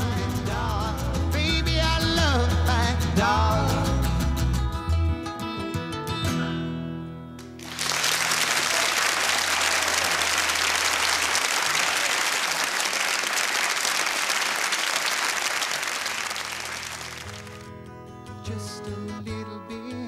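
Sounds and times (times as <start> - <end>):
audience applause: 7.5 - 17.7.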